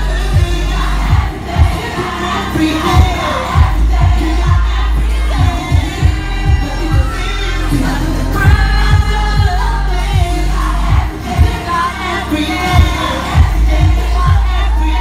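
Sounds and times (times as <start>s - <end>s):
man singing into a microphone: 0.0s - 15.0s
pop backing track: 0.0s - 15.0s.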